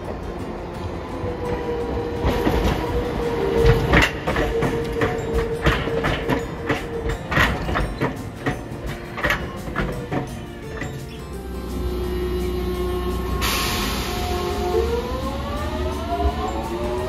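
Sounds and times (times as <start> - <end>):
streetcar wheels knocking over joints: 2.2 - 11.2.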